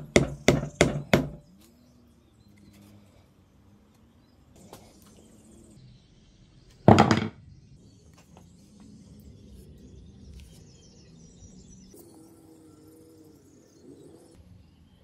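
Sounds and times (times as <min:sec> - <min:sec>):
sledgehammer knocking on wooden floor: 0:06.9 - 0:07.4.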